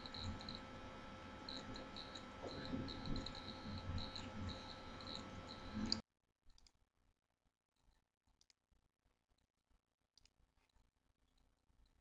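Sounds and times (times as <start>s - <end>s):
faint high whine: 0.0s - 6.0s.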